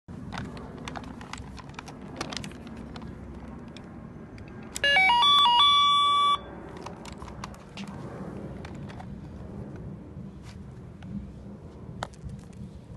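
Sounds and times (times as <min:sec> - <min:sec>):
plastic toy handling clicks: 0:00.3 - 0:04.9
toy electronic beeps: 0:04.8 - 0:06.5.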